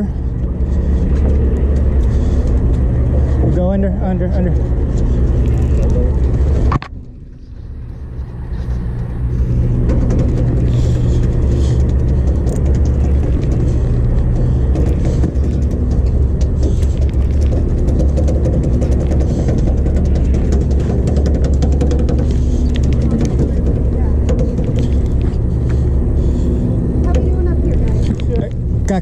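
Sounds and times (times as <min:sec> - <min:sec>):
boat engine droning: 0:00.0 - 0:29.0.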